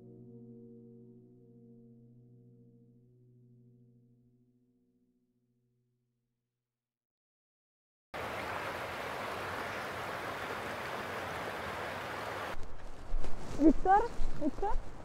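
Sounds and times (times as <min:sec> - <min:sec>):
sea waves breaking: 0:08.2 - 0:12.6.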